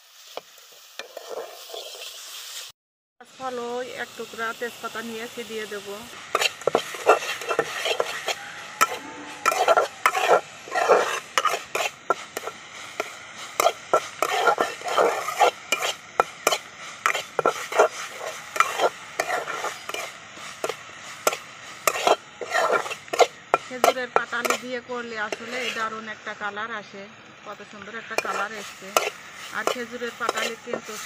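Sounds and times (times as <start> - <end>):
spatula scraping a metal pan: 1.0 - 2.2, 6.3 - 26.0, 28.1 - 31.0.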